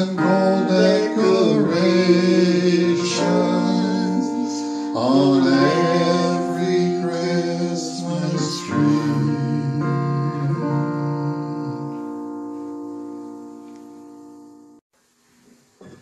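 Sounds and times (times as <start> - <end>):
man singing: 0.0 - 12.1.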